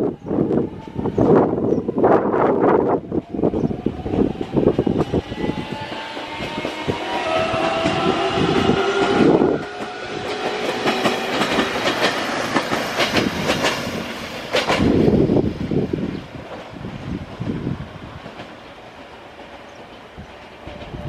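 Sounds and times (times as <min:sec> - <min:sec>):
low rushing of train: 0:00.0 - 0:21.0
train motor whine rising: 0:04.6 - 0:12.3
wheels clicking over rail joints: 0:09.6 - 0:15.1.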